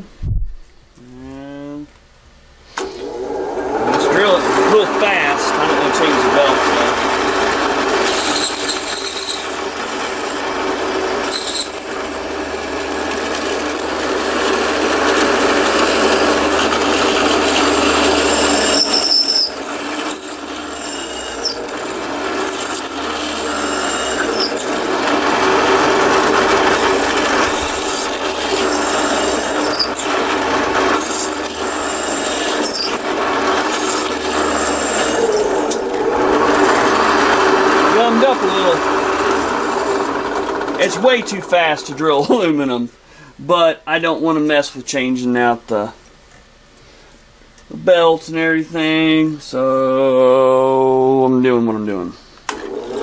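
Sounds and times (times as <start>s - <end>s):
drill press motor hum: 2.7s - 42.4s, 52.4s - 53.0s
drill bit cutting aluminum: 3.8s - 41.9s, 52.5s - 53.0s.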